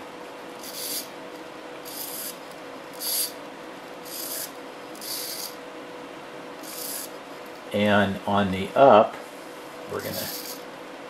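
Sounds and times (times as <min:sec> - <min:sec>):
faint steady hum: 0:00.0 - 0:11.0
servo motor whirring: 0:00.6 - 0:01.1, 0:01.8 - 0:03.4, 0:04.0 - 0:05.6, 0:06.6 - 0:07.2, 0:10.0 - 0:10.6.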